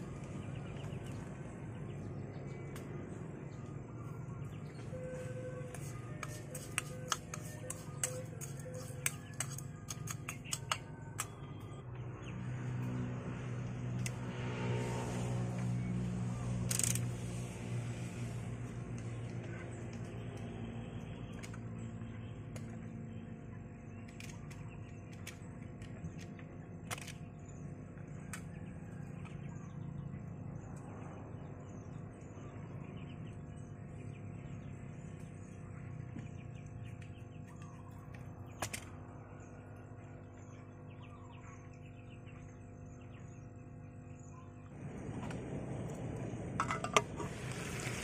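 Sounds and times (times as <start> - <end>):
birds chirping faintly: 0.0 - 48.0
steady low hum: 0.0 - 48.0
sharp clicks: 6.2 - 11.4.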